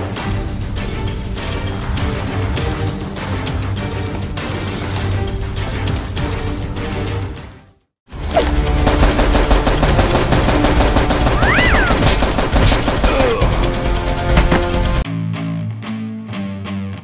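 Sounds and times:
rapid automatic gunfire: 0:08.6 - 0:13.4.

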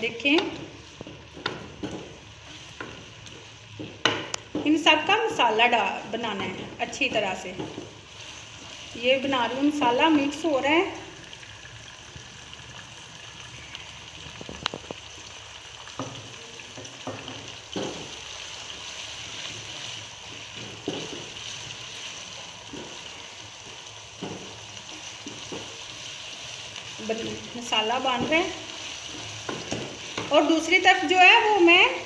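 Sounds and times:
food sizzling in hot oil: 0:00.0 - 0:32.0.

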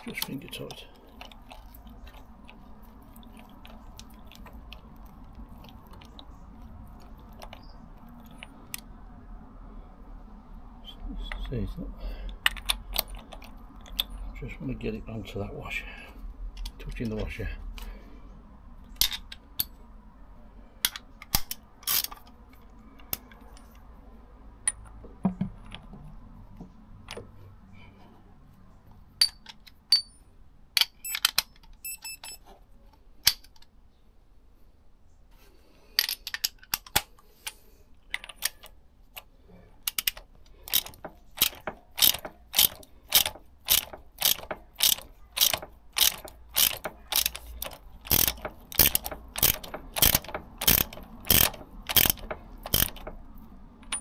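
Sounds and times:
socket ratchet clicking: 0:20.9 - 0:22.4, 0:39.9 - 0:54.0.

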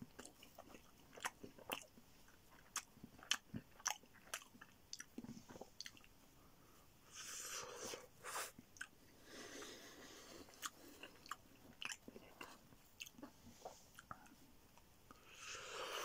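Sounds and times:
chewing with wet mouth clicks: 0:00.0 - 0:06.2, 0:08.7 - 0:09.0, 0:10.4 - 0:14.9.

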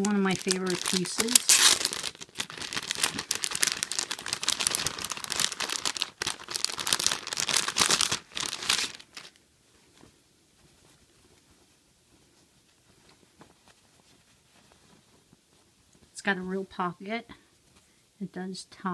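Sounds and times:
plastic bag crinkling: 0:00.0 - 0:10.1.

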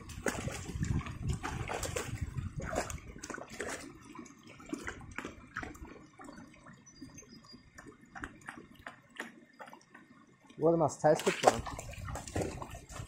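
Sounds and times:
dog splashing in water: 0:00.0 - 0:06.3, 0:11.2 - 0:13.0.

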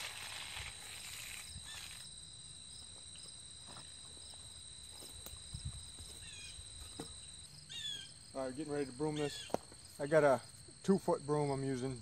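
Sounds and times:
float scraping wet concrete: 0:00.0 - 0:01.6
insects droning and chirping: 0:00.0 - 0:12.0
soft footsteps: 0:02.8 - 0:07.7.

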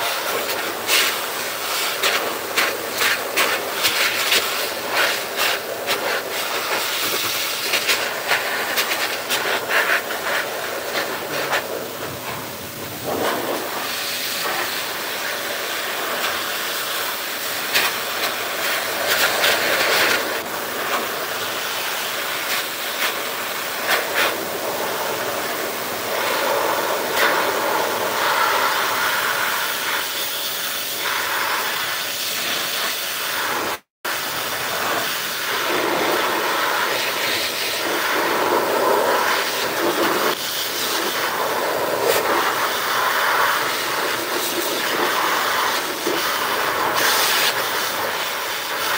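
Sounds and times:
blower dryer hissing: 0:00.0 - 0:48.9.

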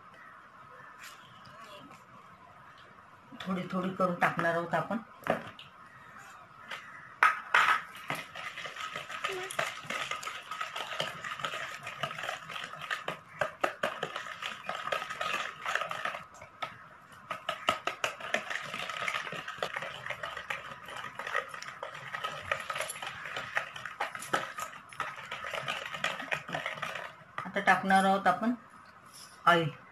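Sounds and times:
whisk rattling against bowl: 0:08.0 - 0:16.4, 0:17.3 - 0:27.9.

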